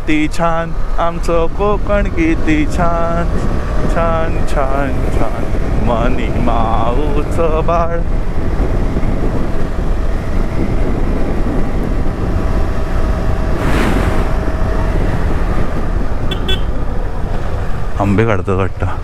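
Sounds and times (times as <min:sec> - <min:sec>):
motorcycle engine cruising: 0:00.5 - 0:18.2
car passing by: 0:13.4 - 0:16.0.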